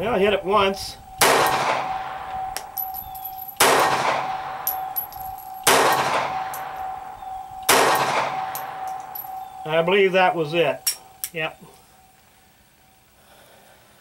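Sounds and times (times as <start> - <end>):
pistol shots with echo: 1.2 - 9.6.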